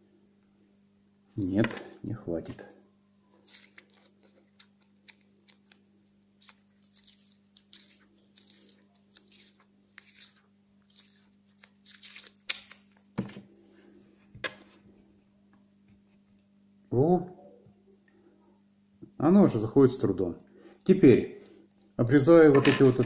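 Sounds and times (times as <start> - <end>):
masking tape ripping off roll: 6.4 - 13.0.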